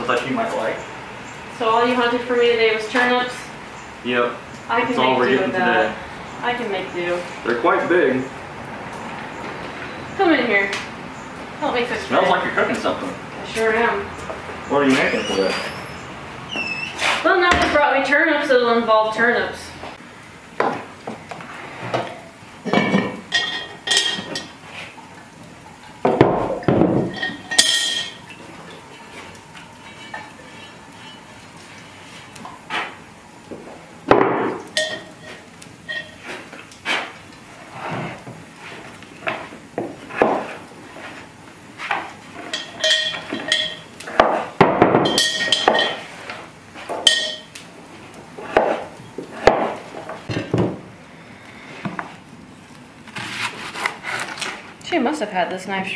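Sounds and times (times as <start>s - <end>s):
pots and lid clanking: 20.6s - 24.7s, 25.8s - 36.7s, 41.8s - 47.6s, 48.4s - 50.8s.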